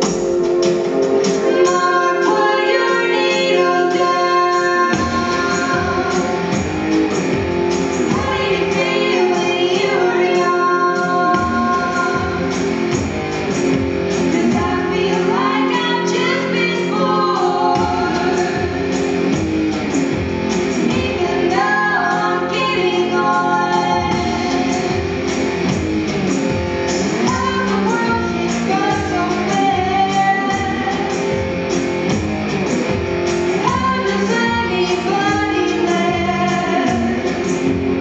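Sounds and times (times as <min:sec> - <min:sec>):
rhythmic guitar accompaniment: 0:00.0 - 0:38.0
two women singing: 0:01.4 - 0:06.7, 0:08.0 - 0:12.6, 0:14.2 - 0:19.0, 0:20.8 - 0:25.2, 0:27.2 - 0:31.4, 0:33.6 - 0:37.5.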